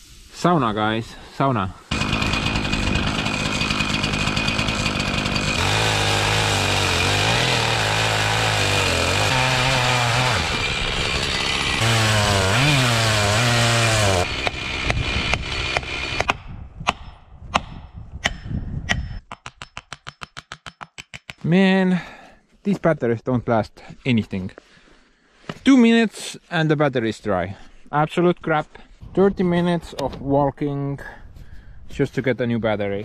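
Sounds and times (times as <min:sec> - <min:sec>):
chainsaw cutting tree trunk: 0:01.9 - 0:16.4.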